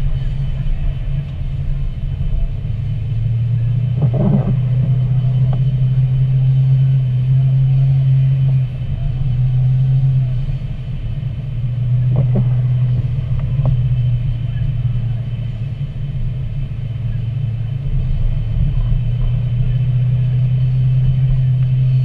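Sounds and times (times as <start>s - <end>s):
car engine and tyre noise: 0.0s - 22.0s
windshield wiper swishes: 3.8s - 6.0s.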